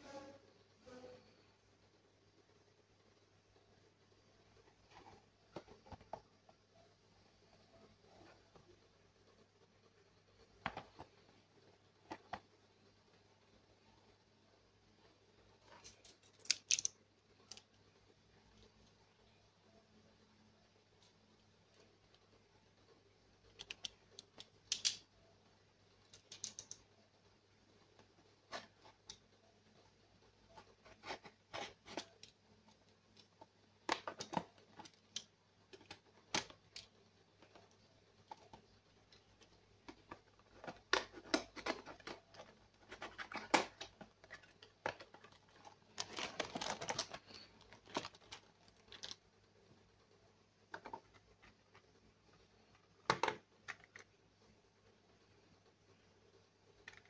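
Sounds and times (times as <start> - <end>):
plastic toy parts clicking: 15.8 - 17.7, 23.6 - 25.0, 26.1 - 26.8
packaging rustling: 39.9 - 49.2.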